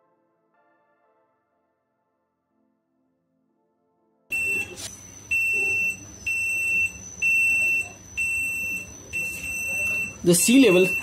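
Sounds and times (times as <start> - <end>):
high-pitched alarm buzzer beeping: 4.3 - 11.0.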